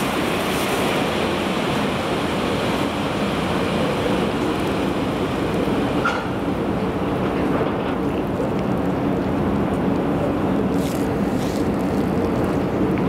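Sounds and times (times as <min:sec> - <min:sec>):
electric locomotive rolling to a stop: 0:00.0 - 0:08.1.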